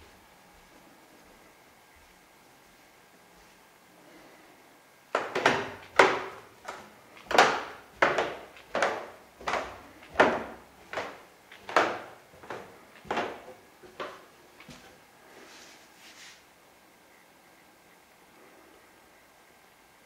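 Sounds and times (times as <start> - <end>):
wooden stairs creaking under footsteps: 5.1 - 15.0.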